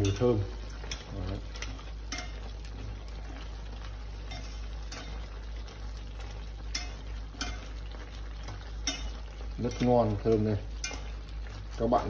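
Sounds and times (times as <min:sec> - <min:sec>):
utensil clicking against pot: 0:00.0 - 0:02.4, 0:06.7 - 0:07.8, 0:08.4 - 0:11.1
food cooking in pot: 0:00.0 - 0:12.0
low steady hum: 0:00.0 - 0:12.0.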